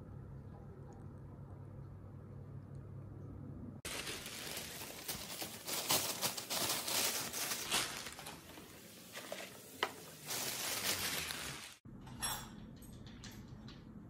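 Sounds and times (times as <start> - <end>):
low room hum: 0.0 - 14.0
plastic bag rustling: 3.8 - 11.8.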